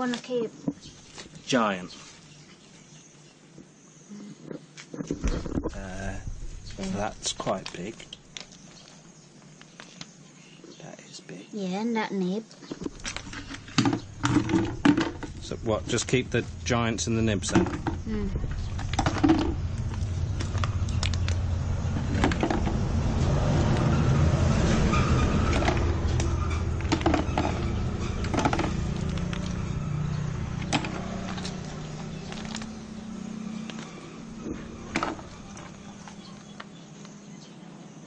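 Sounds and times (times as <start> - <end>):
vehicle engine rumbling: 5.0 - 8.8, 12.7 - 38.0
snail shells clicking: 17.4 - 22.8, 25.5 - 37.2.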